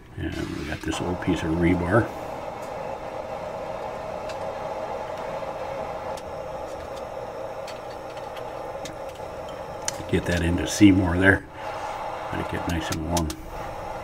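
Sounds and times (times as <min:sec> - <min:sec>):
gas forge rushing: 0:00.0 - 0:14.0.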